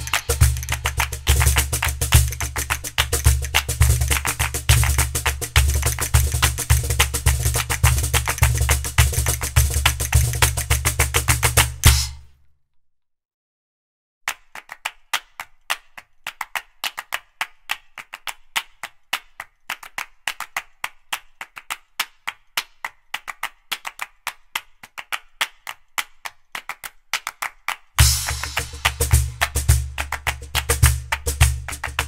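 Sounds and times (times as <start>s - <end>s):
drum and bass beat: 0.0s - 12.3s, 28.0s - 32.0s
rhythmic claps and clicks: 0.0s - 12.3s, 14.3s - 32.0s.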